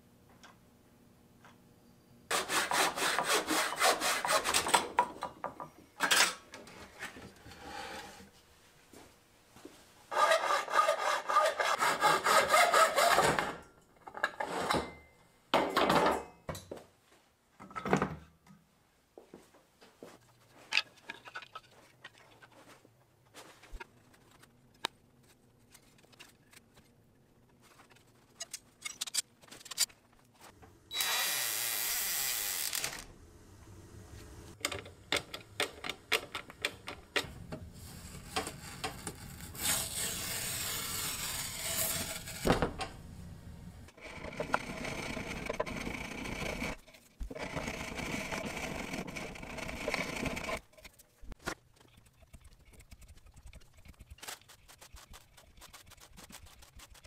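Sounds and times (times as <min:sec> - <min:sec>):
tool rasping on wood: 0:02.3 - 0:04.6, 0:10.1 - 0:13.3.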